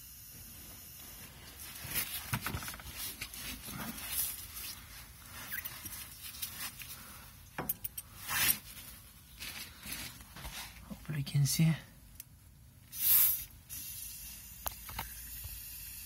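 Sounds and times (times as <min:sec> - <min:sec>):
compressed air hissing: 0:12.9 - 0:14.4.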